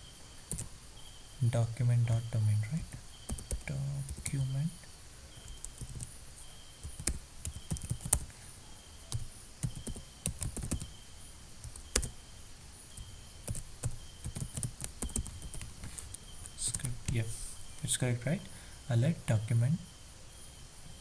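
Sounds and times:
keyboard typing clicks: 0.5s - 0.7s, 3.3s - 4.5s, 6.8s - 8.3s, 9.1s - 10.9s, 11.6s - 12.1s, 13.5s - 15.7s.

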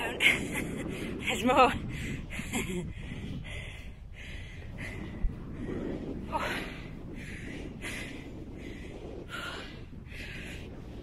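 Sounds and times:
wind rumble on microphone: 0.0s - 11.0s
person panting hard: 1.9s - 10.7s.

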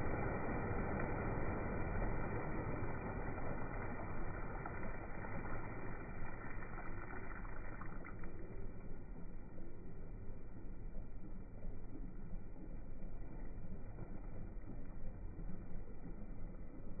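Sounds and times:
water churning and splashing: 0.0s - 10.7s.

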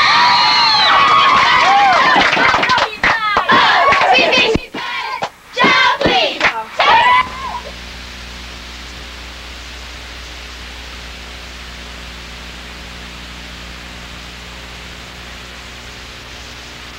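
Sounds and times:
low mains hum: 0.0s - 16.9s
electronic hiss: 6.5s - 16.9s.

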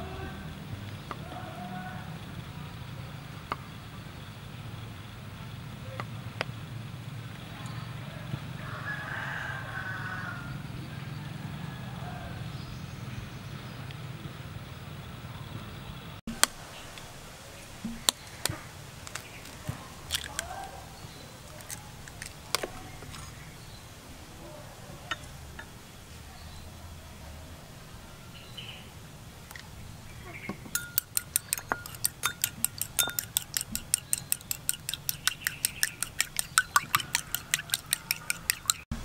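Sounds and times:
egg cracked into bowl: 19.0s - 20.5s, 30.8s - 38.8s
metal spoon knocking bowl: 30.7s - 38.8s.

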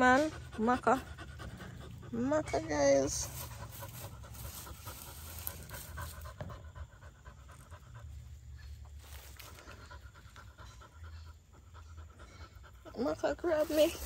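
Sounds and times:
dog panting: 0.0s - 14.0s.

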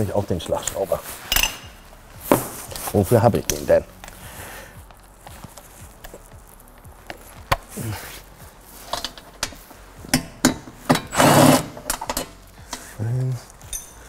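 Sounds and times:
impact wrench hammering: 9.4s - 12.2s.

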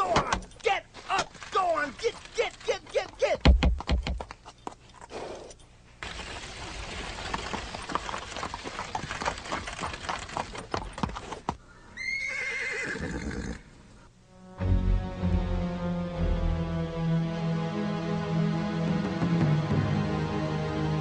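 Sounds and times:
horse hooves clattering: 0.0s - 11.6s
horse whinny: 12.0s - 13.7s
music: 14.3s - 21.0s.

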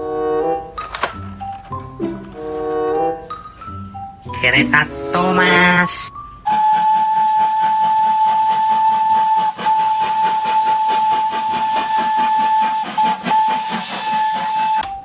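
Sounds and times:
steam locomotive whistle blasts: 0.0s - 0.8s, 4.4s - 15.0s
steam engine exhaust chuffing: 6.4s - 15.0s.

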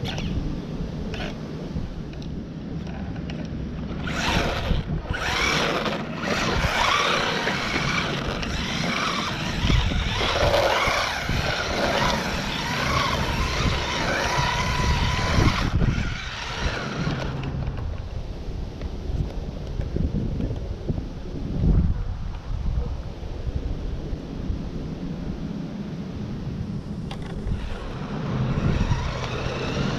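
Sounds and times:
wind noise on microphone: 0.0s - 29.9s
tyre noise: 2.8s - 17.9s
toy car motor whine: 3.9s - 17.7s, 27.5s - 29.9s.

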